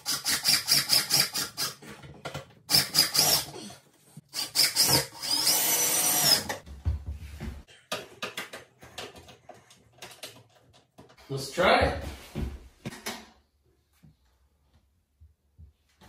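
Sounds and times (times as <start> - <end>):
drill driving screws into metal: 2.7 - 3.5, 4.4 - 6.6
clicks and handling sounds: 7.7 - 11.2.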